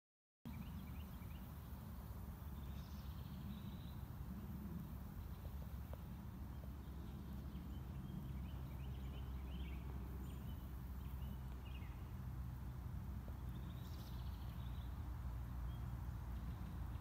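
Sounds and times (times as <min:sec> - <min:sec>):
steady low rumble: 0:00.6 - 0:17.0.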